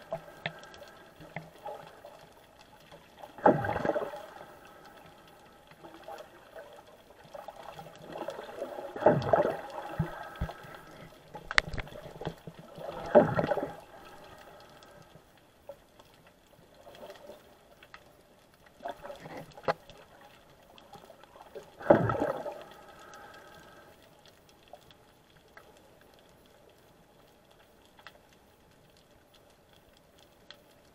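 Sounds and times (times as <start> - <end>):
faint clicks: 0.0 - 30.9
muffled underwater water noise: 0.0 - 30.9.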